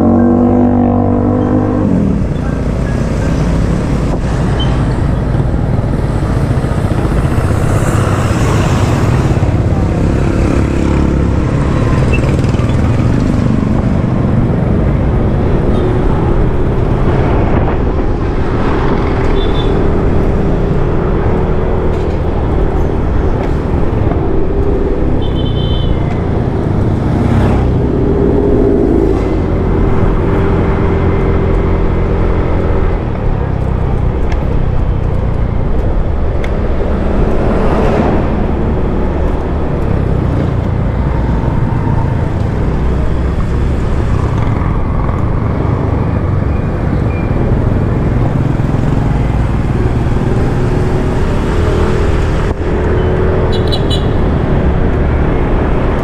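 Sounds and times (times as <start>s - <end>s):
vehicle engine and road noise: 0.0s - 56.0s.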